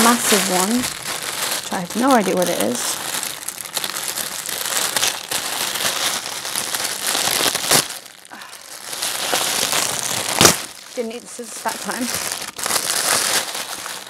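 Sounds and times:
plastic package crinkling and tearing: 0.0s - 14.0s
sharp crack: 9.1s - 10.8s.

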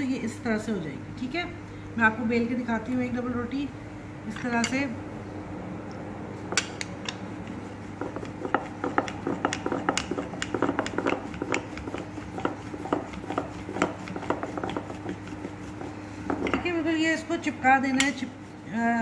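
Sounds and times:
steady low hum: 0.0s - 19.0s
rolling pin knocking on stone: 8.0s - 16.7s.

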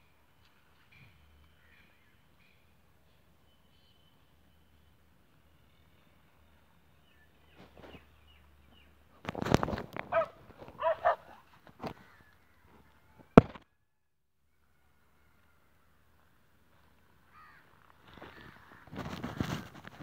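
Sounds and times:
dog yelping: 10.1s - 11.4s.

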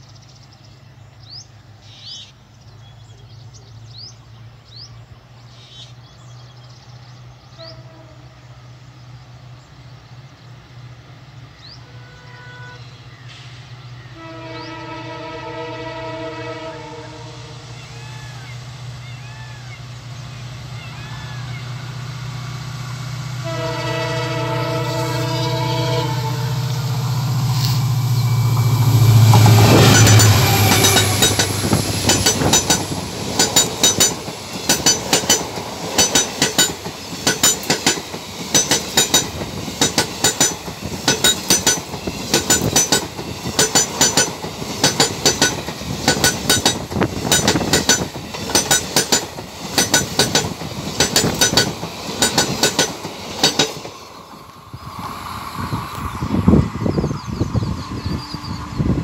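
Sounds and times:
locomotive rumble: 3.0s - 59.0s
train horn: 7.5s - 8.6s, 11.8s - 13.0s, 14.0s - 18.4s, 23.4s - 27.9s
train wheels clattering over rail joints: 29.2s - 54.4s.

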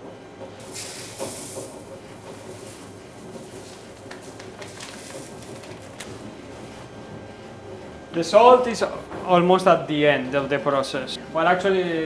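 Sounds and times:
low background hum: 0.0s - 12.0s
salt pouring into paper cup: 0.6s - 1.7s, 2.6s - 5.9s
plastic bag crinkling: 3.6s - 6.2s.

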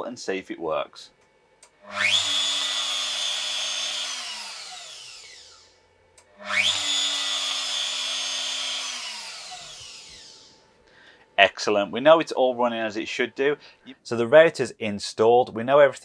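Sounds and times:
router motor whining: 1.6s - 10.8s.

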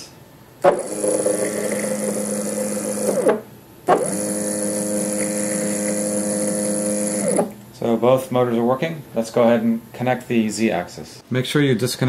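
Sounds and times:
stepper motor whining: 0.6s - 7.6s.

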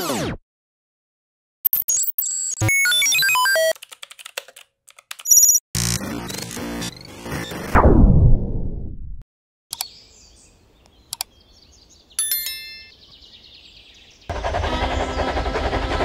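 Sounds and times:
birds chirping: 9.7s - 15.6s.

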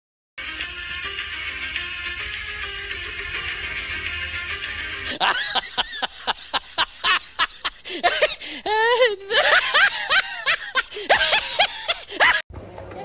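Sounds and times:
person laughing hard: 5.1s - 12.4s.

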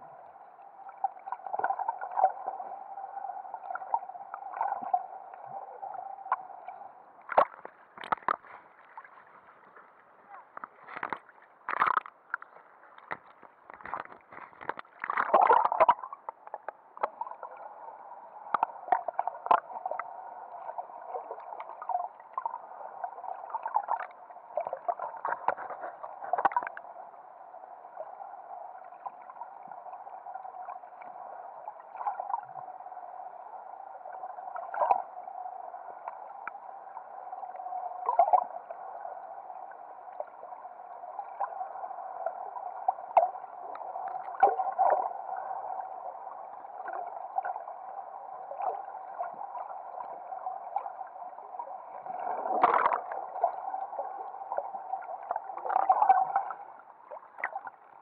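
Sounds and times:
muffled underwater rush: 0.0s - 58.0s
underwater clicks and pops: 7.3s - 8.6s, 10.5s - 17.2s, 18.5s - 19.7s, 23.9s - 26.8s, 52.4s - 53.2s
water splash: 7.3s - 9.2s, 13.1s - 16.0s, 52.3s - 53.2s.

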